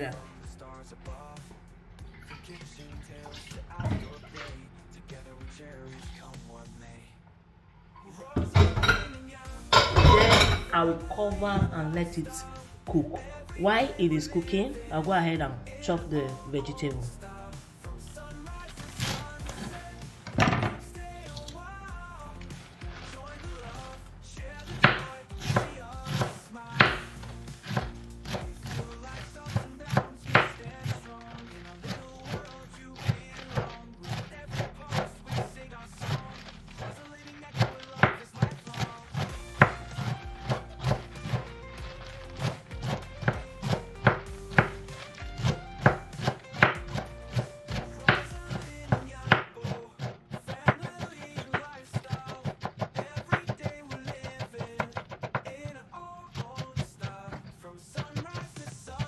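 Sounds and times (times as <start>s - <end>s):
quiet background music: 0.0s - 59.0s
knife chopping on wooden board: 24.7s - 36.9s, 37.5s - 55.6s.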